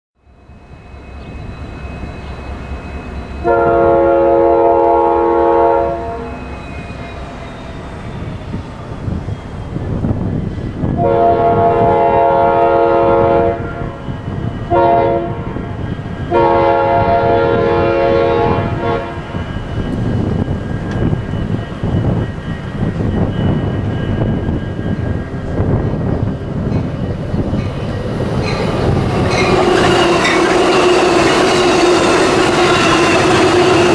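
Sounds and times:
locomotive air horn blasts: 3.4 - 6.4, 11.0 - 14.0, 14.7 - 15.7, 16.3 - 19.4.

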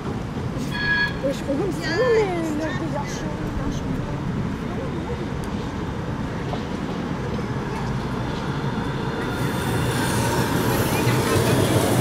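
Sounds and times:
tram rumble: 0.0 - 12.0
wheel-on-rail hiss: 8.4 - 12.0.

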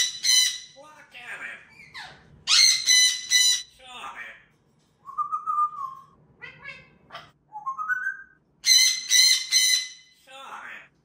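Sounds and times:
parrot harsh squawks: 0.0 - 0.8, 1.6 - 3.7, 6.4 - 7.4, 8.6 - 10.2
parrots whistling and calling: 0.0 - 0.8, 1.7 - 3.6, 5.1 - 10.2.

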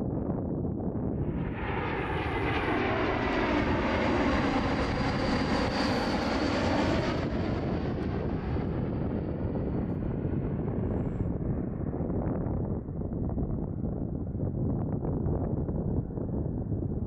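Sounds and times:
jet airliner passing: 0.9 - 14.4.

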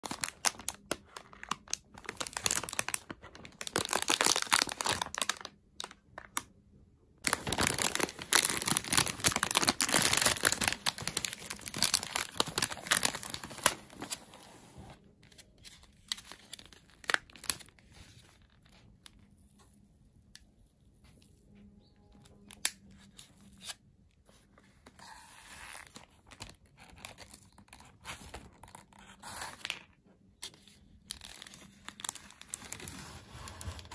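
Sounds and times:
plastic wrapper crinkling: 0.0 - 6.5, 7.2 - 19.3, 25.7 - 33.9.

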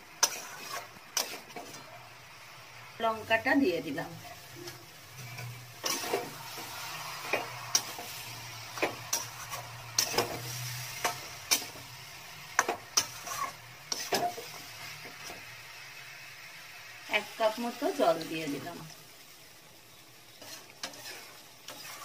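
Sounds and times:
light sizzle of frying: 0.0 - 22.0
metal spatula scraping a pan: 0.2 - 2.0, 4.2 - 15.5, 20.3 - 22.0.

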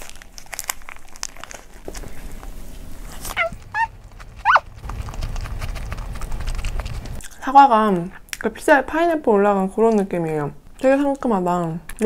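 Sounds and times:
biting and chewing sandwich: 0.0 - 7.2
paper wrapper crinkling: 0.0 - 7.2
low rumble: 2.8 - 7.2
high-pitched squeaks: 3.3 - 4.9.

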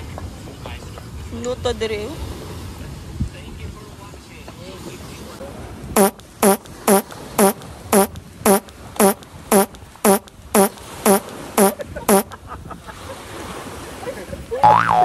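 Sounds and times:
cartoon pitched blare: 6.0 - 12.3, 14.6 - 15.0.

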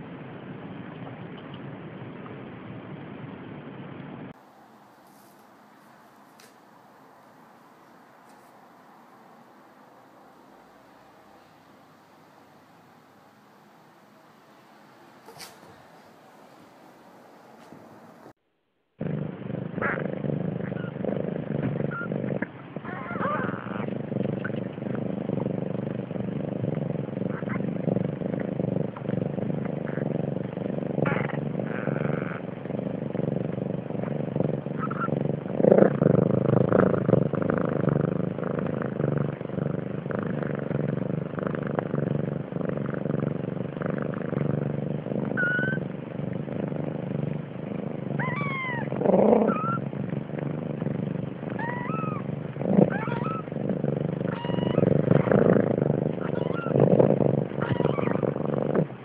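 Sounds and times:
kittens mewing: 22.8 - 23.9, 45.4 - 45.8, 48.2 - 49.8, 51.5 - 53.5, 54.3 - 55.3, 56.2 - 56.8, 57.6 - 58.3.

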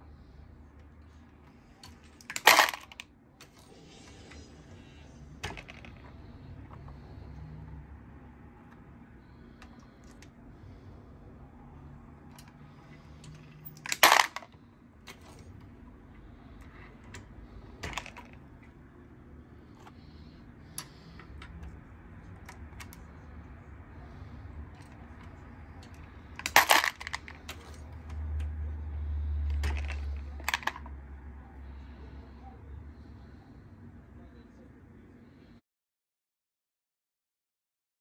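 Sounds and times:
metallic clinks and clatters: 1.8 - 3.0, 26.4 - 27.8.

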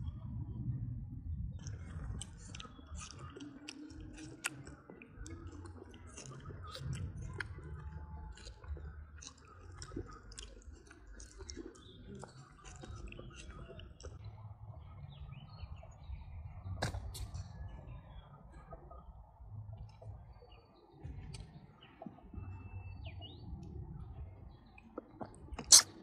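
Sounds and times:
low rumble: 0.0 - 3.4, 12.9 - 25.6
monkey mouth smacking and clicking: 25.6 - 26.0.

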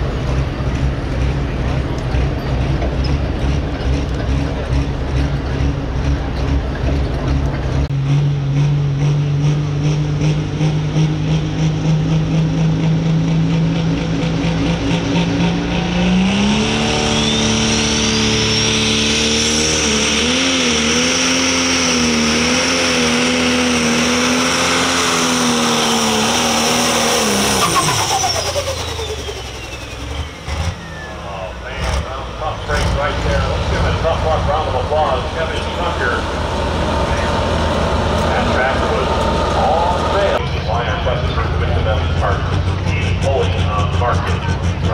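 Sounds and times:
diesel engine revving: 0.0 - 44.9
turbo whistle: 16.8 - 19.1.

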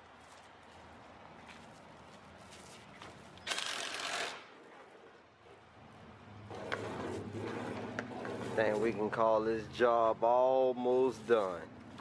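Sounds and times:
paint roller rasping: 6.5 - 9.2.

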